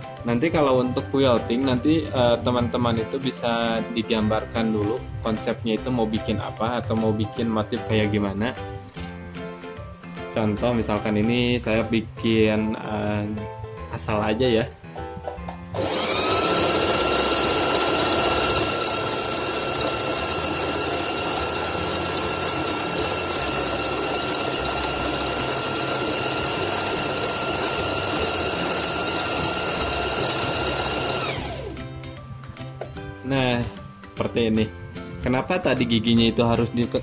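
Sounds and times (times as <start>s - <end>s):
sewing machine motor whine: 15.8s - 31.8s.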